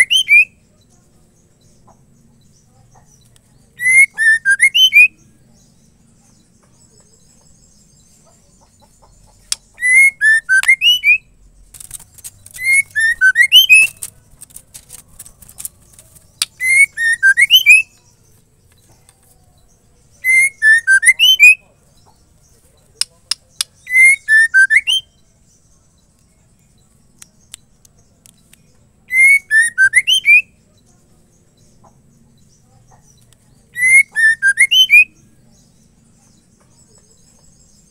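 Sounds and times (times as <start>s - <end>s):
bird whistled call: 3.8s - 5.1s, 9.8s - 11.3s, 12.6s - 14.0s, 16.6s - 17.9s, 20.2s - 21.6s, 23.8s - 25.1s, 29.1s - 30.5s, 33.8s - 35.1s
sharp bird ticks: 8.7s - 9.8s, 11.6s - 17.9s, 22.9s - 23.9s, 27.1s - 28.8s.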